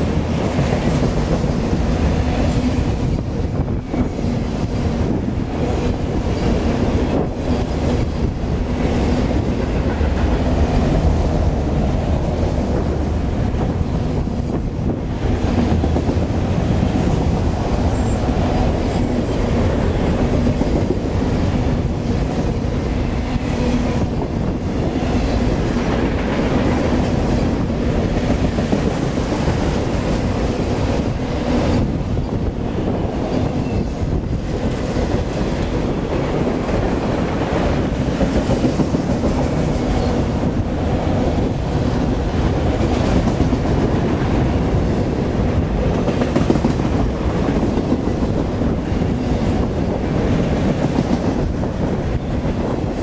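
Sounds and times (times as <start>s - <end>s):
steel wheels rumbling on rail: 0.0s - 53.0s
clacks over rail joints: 45.8s - 53.0s.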